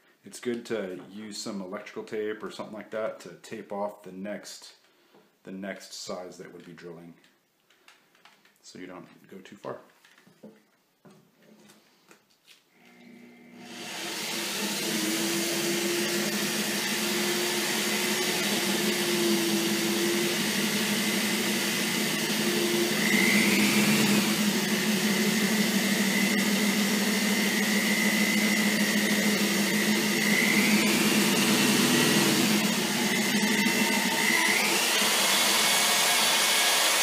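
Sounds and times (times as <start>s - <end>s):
electric drill boring acrylic: 12.8s - 37.0s.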